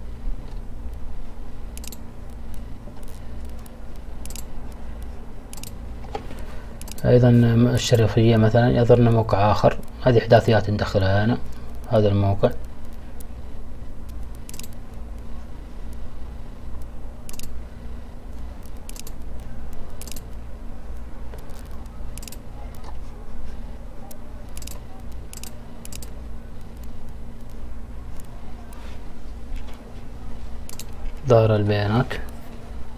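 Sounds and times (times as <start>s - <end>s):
steady low hum: 0.0s - 32.9s
computer mouse clicks: 1.8s - 6.2s, 6.8s - 7.1s, 14.0s - 15.3s, 16.7s - 17.6s, 18.3s - 20.4s, 21.0s - 23.0s, 24.1s - 28.8s, 30.6s - 31.3s.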